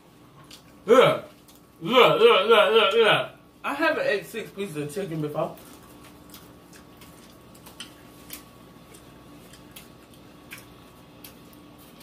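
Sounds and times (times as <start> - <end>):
faint steady hum: 0.0 - 12.0
wet eating smacks and clicks: 5.6 - 12.0.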